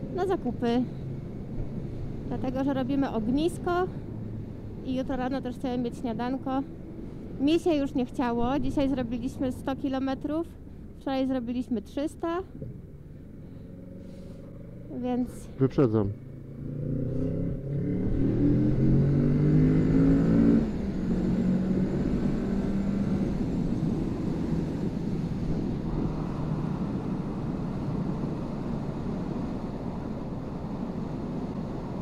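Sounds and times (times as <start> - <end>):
motorcycle engine revving: 16.2 - 24.0
wind rush: 17.3 - 32.0.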